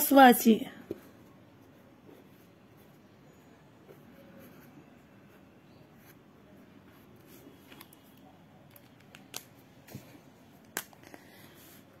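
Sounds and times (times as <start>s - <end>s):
pen scratching on paper: 1.6s - 7.7s.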